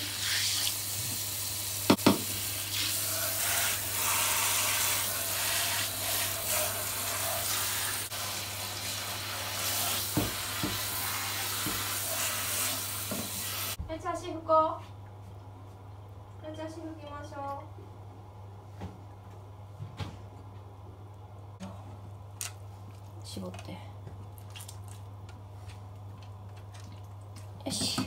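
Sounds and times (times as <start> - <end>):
shower head spraying water: 0.0 - 13.8.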